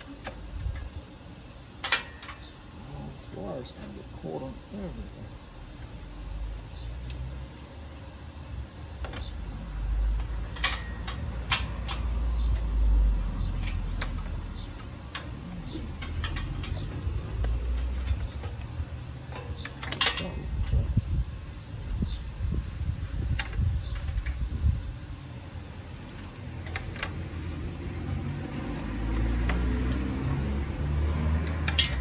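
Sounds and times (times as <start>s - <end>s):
wind buffeting microphone: 20.2s - 25.1s.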